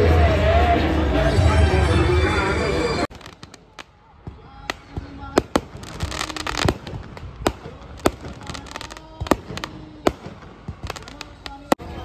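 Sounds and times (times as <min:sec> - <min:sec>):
fireworks crackling: 0:03.0 - 0:12.0
fireworks bangs and pops: 0:03.1 - 0:12.0.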